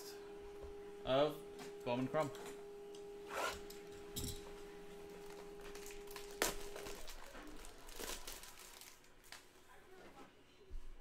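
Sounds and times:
cellophane wrap crinkling: 0:05.1 - 0:09.5.

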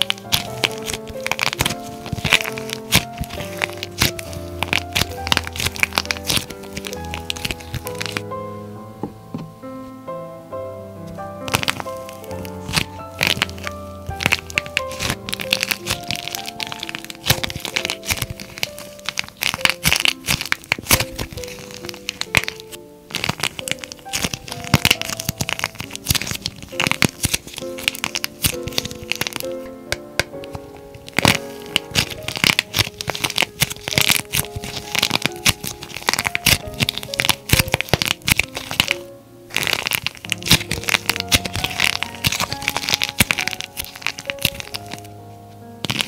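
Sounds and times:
clay crust cracking: 0:00.0 - 0:08.3, 0:11.1 - 0:45.1, 0:45.8 - 0:46.0
hands kneading clay: 0:00.0 - 0:08.3, 0:11.1 - 0:45.1, 0:45.8 - 0:46.0
soft piano music: 0:00.0 - 0:46.0.

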